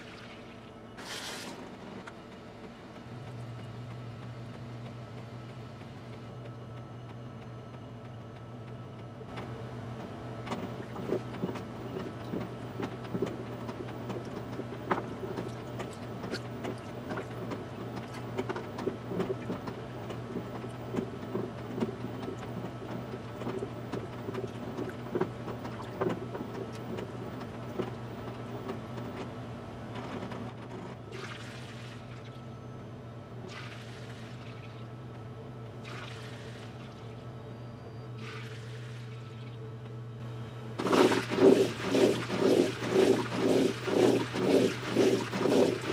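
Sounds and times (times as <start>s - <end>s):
water sloshing and splashing: 0.0s - 1.6s, 10.5s - 28.4s, 31.1s - 32.4s, 33.5s - 34.9s, 35.8s - 37.2s, 38.2s - 39.6s, 40.8s - 45.9s
washing drum spinning hiss: 0.0s - 3.3s, 40.7s - 45.9s
washing machine motor hum: 0.0s - 45.9s.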